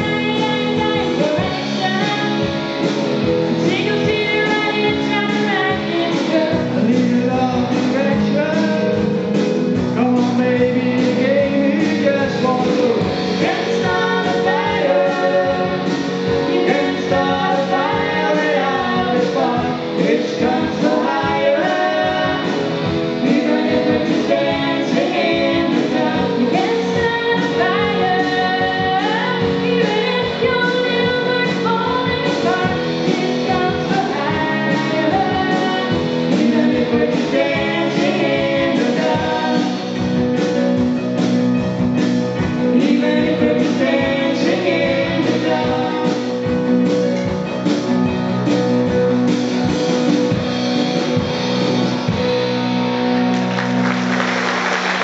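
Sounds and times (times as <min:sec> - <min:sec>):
live band playing: 0:00.0 - 0:55.0
person singing: 0:03.7 - 0:09.1, 0:10.0 - 0:40.0, 0:42.6 - 0:46.5.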